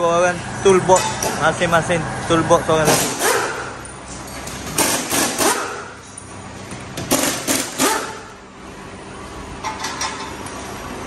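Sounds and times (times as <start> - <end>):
pneumatic impact wrench bursts: 2.8 - 3.8, 4.7 - 6.0, 7.0 - 8.3.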